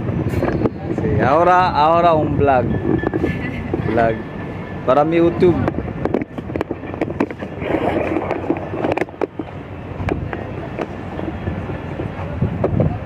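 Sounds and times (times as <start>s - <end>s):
outdoor rumble: 0.0s - 13.0s
wind buffeting microphone: 0.0s - 13.0s
handling clicks and knocks: 5.6s - 12.8s.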